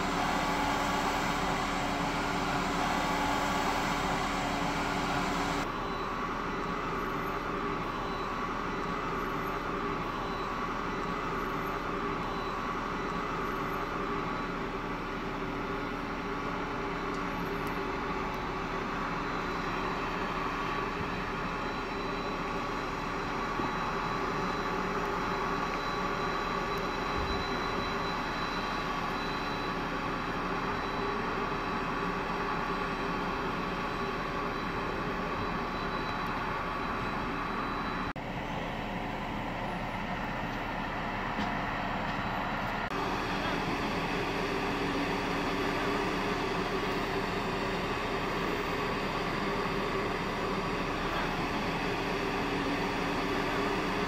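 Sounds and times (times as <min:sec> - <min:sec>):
thin high whine: 0:00.0 - 0:06.2
machine drone with low hum: 0:00.0 - 0:54.0.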